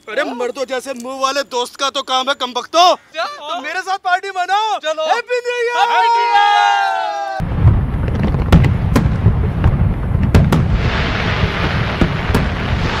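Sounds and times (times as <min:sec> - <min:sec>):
person shouting: 0:04.6 - 0:07.4
fireworks bangs: 0:07.4 - 0:13.0
fireworks crackling: 0:07.4 - 0:13.0.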